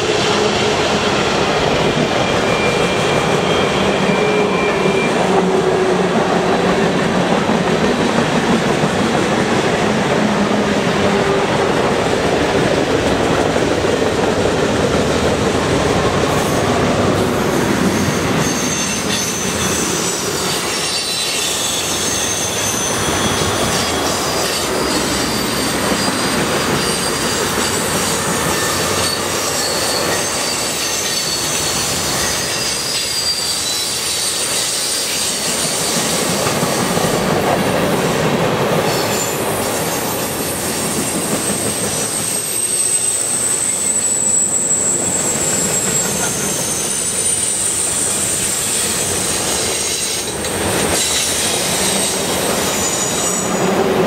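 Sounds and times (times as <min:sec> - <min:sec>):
train wheels rumbling: 0:00.0 - 0:54.0
high-pitched wheel squeal: 0:01.6 - 0:05.6, 0:17.3 - 0:36.0, 0:38.9 - 0:53.7.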